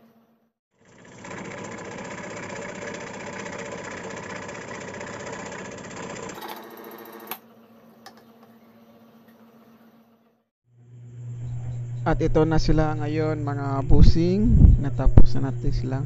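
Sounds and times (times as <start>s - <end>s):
scroll saw cutting plywood: 0.8s - 7.4s.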